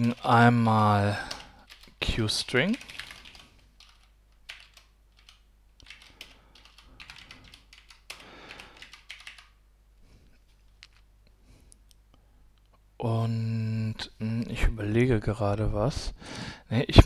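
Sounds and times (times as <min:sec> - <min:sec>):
computer keyboard typing: 0:00.0 - 0:09.6.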